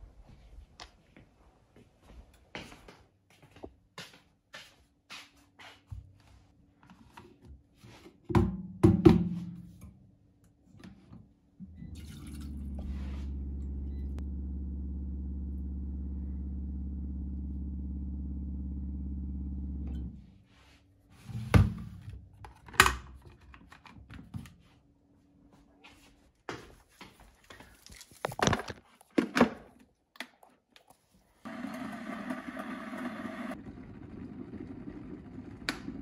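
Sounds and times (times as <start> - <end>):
water purifier pump humming: 11.6 - 20.1, 31.5 - 36.0
kettle filling with water: 11.8 - 12.9, 31.5 - 35.8.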